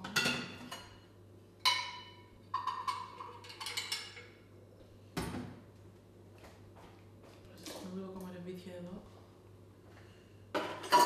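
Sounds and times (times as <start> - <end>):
kitchenware clinking: 0.0 - 4.4, 10.5 - 11.0.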